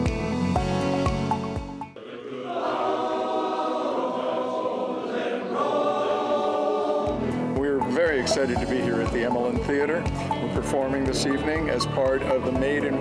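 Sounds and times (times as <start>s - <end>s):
background music track: 0.0s - 13.0s
men's chorus singing a cappella: 2.0s - 7.4s.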